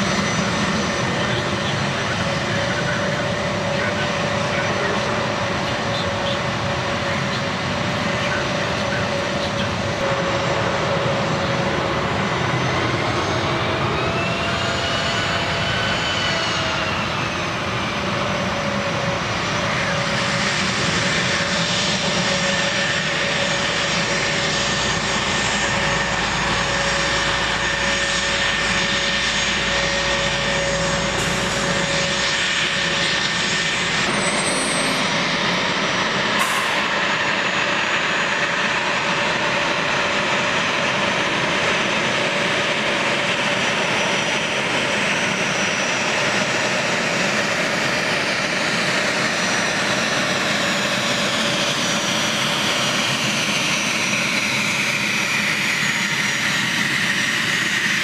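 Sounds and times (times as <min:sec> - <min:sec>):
jet engine high whine: 0:00.0 - 0:58.0
jet engines rushing: 0:00.0 - 0:58.0.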